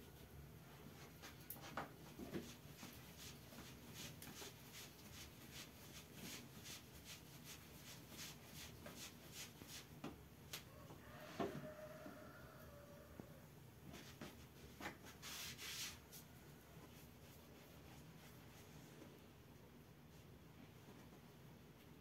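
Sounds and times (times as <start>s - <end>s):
hands rolling bread dough: 0.2s - 11.6s.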